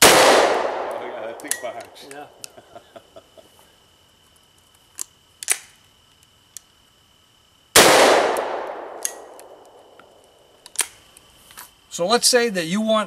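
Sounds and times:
shotgun blast: 0:00.0 - 0:01.3, 0:07.8 - 0:09.3
metallic gun handling clicks: 0:01.4 - 0:02.2, 0:04.9 - 0:05.7, 0:10.6 - 0:11.0.

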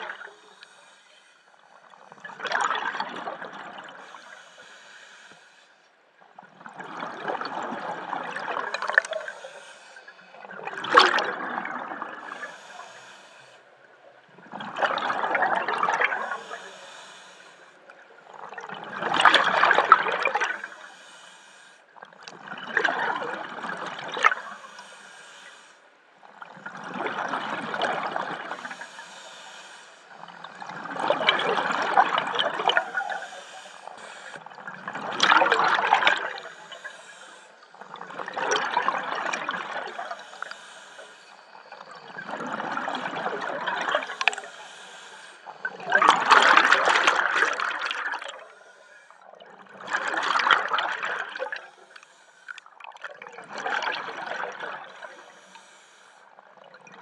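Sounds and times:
regulator hissing inhalation: 0:00.2 - 0:01.5, 0:04.0 - 0:05.8, 0:09.0 - 0:10.2, 0:12.4 - 0:13.6, 0:16.2 - 0:17.7, 0:20.6 - 0:21.8, 0:24.5 - 0:25.8, 0:28.6 - 0:30.2, 0:32.8 - 0:34.5, 0:36.4 - 0:37.8, 0:40.0 - 0:41.8, 0:44.1 - 0:45.6, 0:55.2 - 0:56.2
exhaled bubbles rushing: 0:02.2 - 0:04.0, 0:06.6 - 0:09.4, 0:10.4 - 0:12.4, 0:14.4 - 0:16.4, 0:18.3 - 0:20.6, 0:22.3 - 0:24.4, 0:26.4 - 0:28.7, 0:30.2 - 0:33.3, 0:34.5 - 0:36.5, 0:37.8 - 0:40.1, 0:41.8 - 0:44.4, 0:45.6 - 0:48.5, 0:49.5 - 0:51.7, 0:52.8 - 0:55.0.

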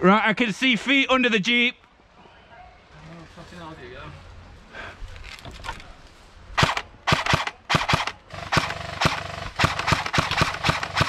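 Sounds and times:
airsoft guns firing: 0:06.6 - 0:11.0.

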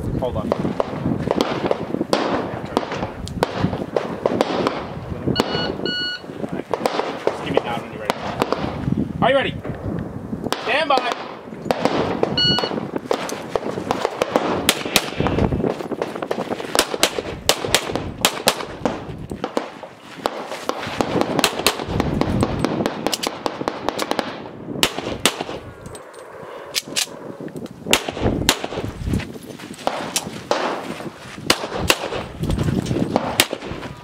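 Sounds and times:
shot timer beep: 0:05.4 - 0:06.3, 0:12.4 - 0:12.8
pistol shots: 0:06.7 - 0:08.8, 0:10.5 - 0:15.4, 0:16.0 - 0:25.6, 0:27.9 - 0:28.9, 0:29.8 - 0:30.8, 0:31.5 - 0:32.3, 0:33.1 - 0:33.8.

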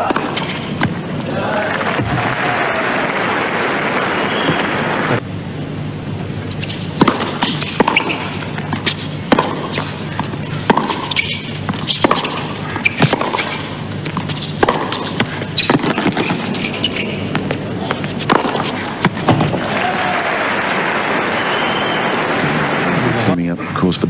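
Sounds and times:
racket striking tennis ball: 0:00.0 - 0:01.2, 0:06.5 - 0:19.7
tennis ball bouncing: 0:00.0 - 0:01.2, 0:06.5 - 0:19.7.

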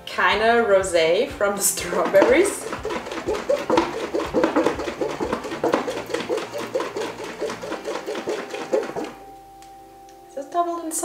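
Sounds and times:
cream sloshing in shaken jar: 0:01.8 - 0:09.2.

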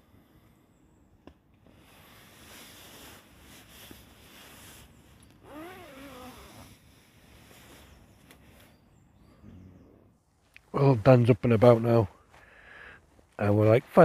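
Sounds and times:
nylon fabric rustling and crinkling: 0:02.4 - 0:06.7.

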